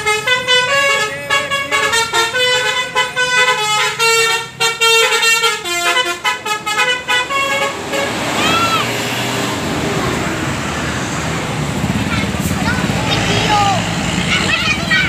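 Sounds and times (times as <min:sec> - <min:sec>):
bus horn playing a tune: 0:00.0 - 0:09.1.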